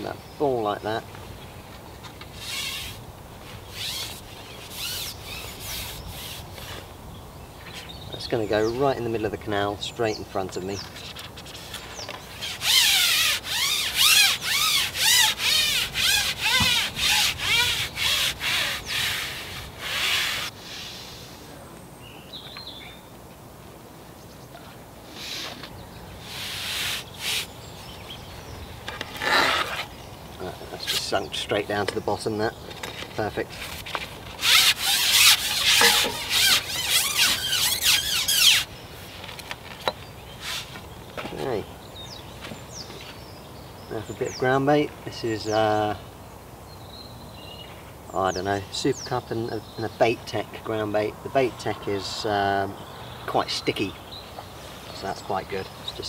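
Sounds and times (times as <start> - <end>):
squeak rising and falling: 3.7 - 6.4, 12.3 - 20.5, 34.4 - 38.7
pole rubbing through hands: 11.1 - 20.5, 34.4 - 38.6
fishing pole sliding through hands: 25.1 - 27.5, 34.4 - 38.6.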